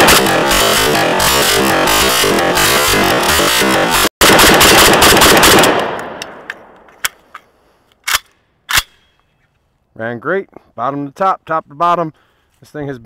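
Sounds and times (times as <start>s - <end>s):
rifle firing rapid shots: 4.2s - 6.4s.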